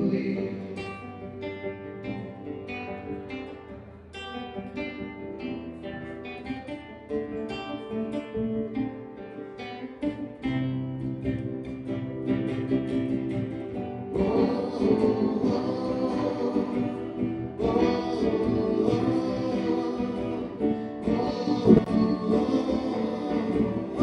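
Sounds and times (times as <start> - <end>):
man singing: 0.0 - 1.5, 14.1 - 24.0
classical guitar strumming: 0.0 - 24.0.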